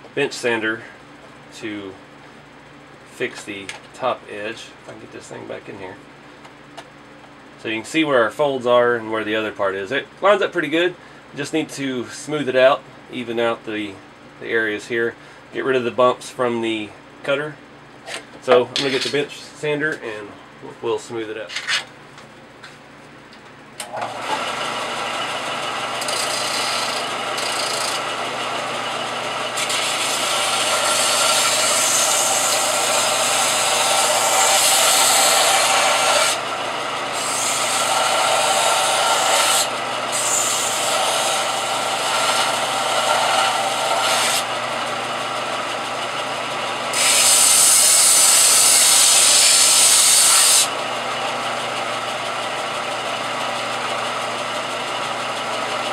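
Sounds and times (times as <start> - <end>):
sander motor hum: 23.8 - 55.9
metal being sanded: 26.0 - 28.0, 29.5 - 36.4, 37.1 - 44.5, 46.9 - 50.7.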